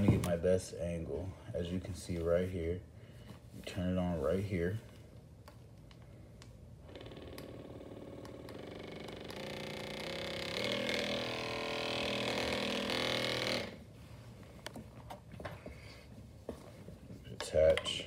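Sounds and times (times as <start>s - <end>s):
massage gun motor humming: 6.8s - 13.9s.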